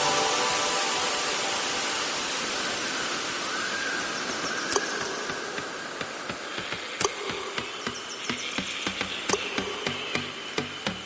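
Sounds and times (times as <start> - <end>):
steady hiss: 0.0 - 11.0
sharp clicks: 4.5 - 11.0.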